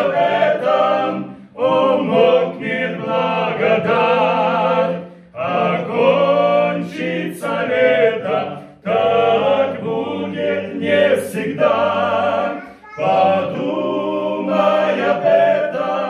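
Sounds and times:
men's choir singing a hymn: 0.0s - 16.0s
singers breathing: 1.2s - 1.6s, 5.0s - 5.4s.

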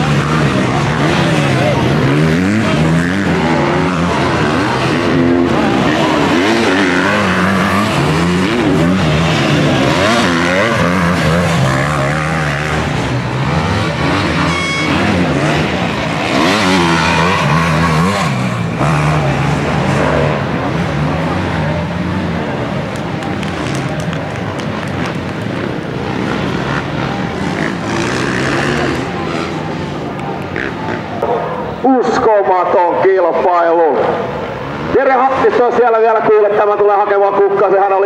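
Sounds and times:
motocross bikes revving: 0.0s - 38.0s
brief high tone: 14.4s - 15.2s.

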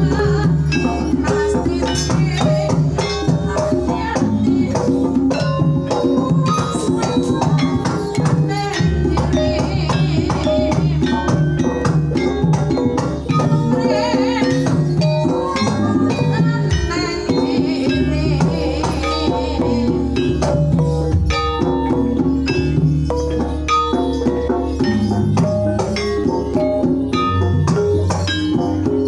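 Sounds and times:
woman singing into microphone: 0.0s - 20.8s
drum strokes: 0.0s - 29.0s
wooden keyed instrument: 0.0s - 29.0s.

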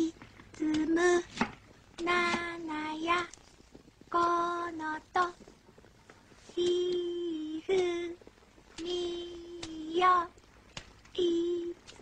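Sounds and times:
child singing: 0.0s - 1.4s, 2.0s - 3.3s, 4.1s - 5.4s, 6.5s - 8.2s, 8.8s - 10.4s, 11.1s - 12.0s.

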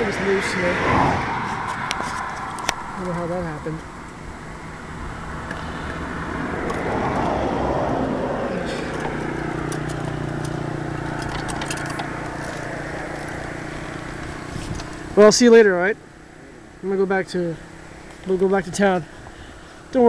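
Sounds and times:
steady engine hum: 0.0s - 20.0s
vehicle passing: 0.0s - 20.0s
light clicks and rattles: 8.8s - 13.4s.

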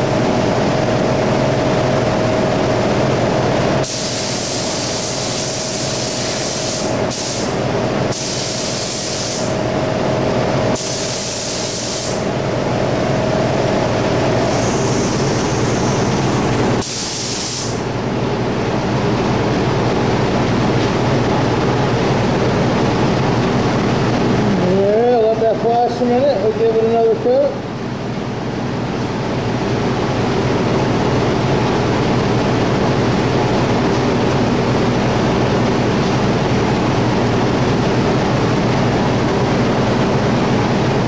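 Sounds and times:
steady machine drone: 0.0s - 41.0s
spray gun hissing: 3.8s - 9.6s, 10.8s - 12.3s, 14.4s - 17.9s.

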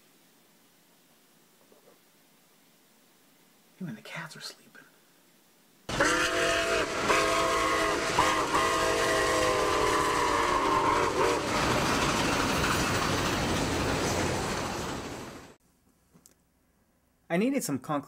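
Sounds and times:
train horn blasts: 5.9s - 11.7s
running train noise: 5.9s - 15.6s.

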